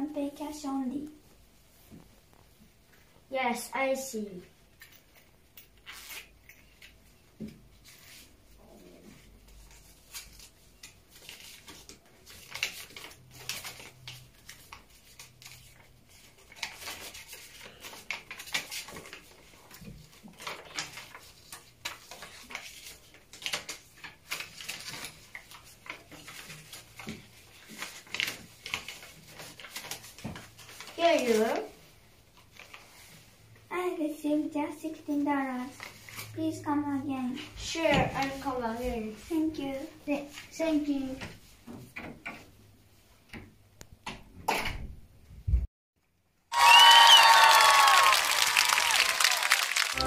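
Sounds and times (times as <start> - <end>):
paper bills rustling: 5.8 - 7.0, 9.2 - 33.3
paper crinkles: 7.7 - 33.3.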